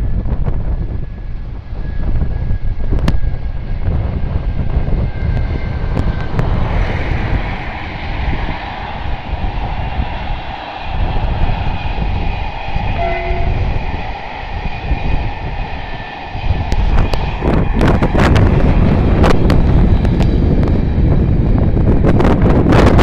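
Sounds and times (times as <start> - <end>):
train wheels rumbling: 0.0 - 23.0
faint high squealing: 12.5 - 16.7.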